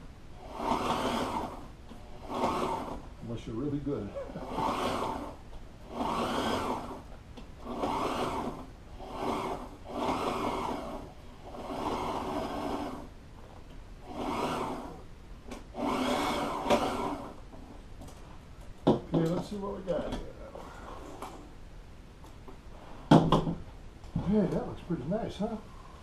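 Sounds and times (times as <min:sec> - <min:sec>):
sewing machine stitching: 0:00.4 - 0:03.1, 0:04.3 - 0:07.0, 0:07.6 - 0:13.1, 0:14.0 - 0:15.0, 0:15.7 - 0:17.4.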